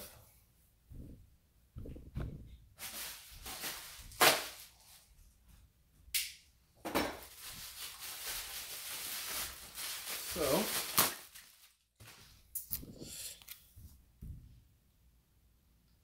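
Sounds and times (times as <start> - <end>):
wrapping crinkling: 2.8 - 5.1, 7.2 - 12.8.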